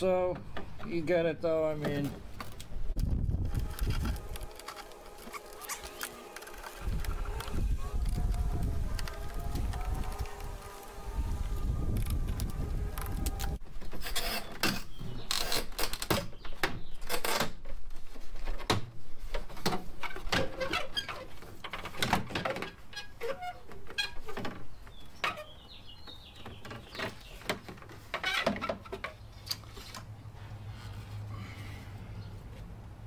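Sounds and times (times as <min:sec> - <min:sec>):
plastic clicks knocks and squeaks: 0:12.0 - 0:17.8, 0:18.4 - 0:30.0.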